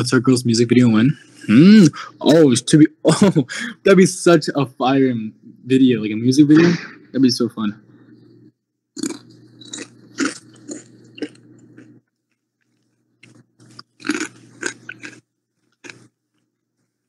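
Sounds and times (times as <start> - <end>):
chewing crunchy chips: 9.0 - 16.8.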